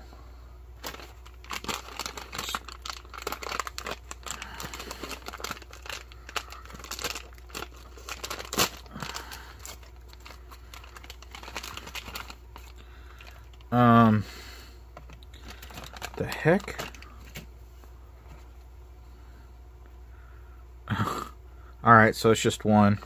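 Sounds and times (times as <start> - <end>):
foil pouch crinkling and tearing: 0.8 - 13.8, 15.0 - 17.4.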